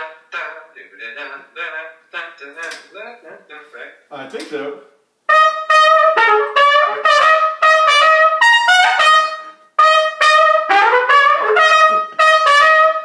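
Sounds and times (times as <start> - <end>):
solo trumpet playing short notes: 5.3 - 13.0.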